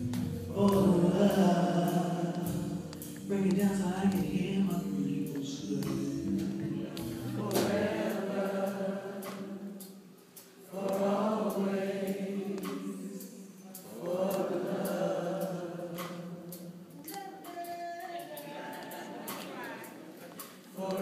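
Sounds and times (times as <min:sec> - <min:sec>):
bass and keyboards: 0:00.0 - 0:08.0
choir singing slow ballad: 0:00.0 - 0:17.0, 0:18.3 - 0:21.0.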